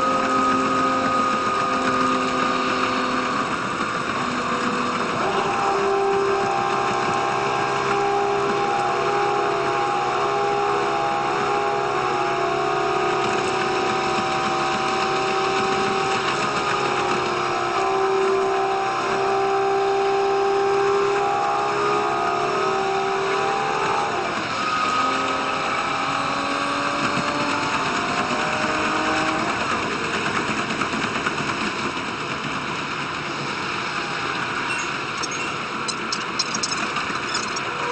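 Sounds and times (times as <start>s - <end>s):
sped-up railcar engine whine: 0.0s - 37.9s.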